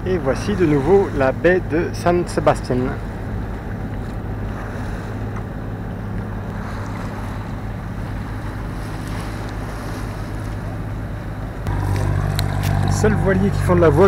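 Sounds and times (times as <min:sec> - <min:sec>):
boat engine running: 0:00.0 - 0:14.0
water rushing along hull: 0:00.0 - 0:14.0.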